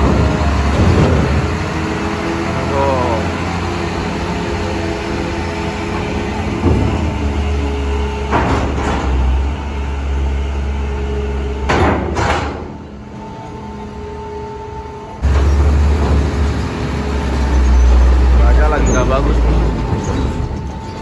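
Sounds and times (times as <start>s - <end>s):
loud clanking knocks: 0.0s - 2.5s, 5.6s - 9.6s, 11.6s - 12.8s, 15.2s - 17.5s
heavy vehicle engine running: 0.0s - 21.0s.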